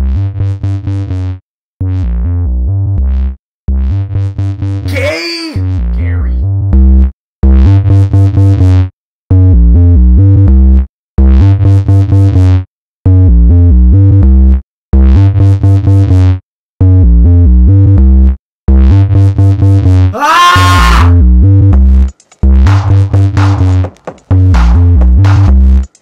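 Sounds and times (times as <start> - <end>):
electronic dance music: 22.7 - 26.0.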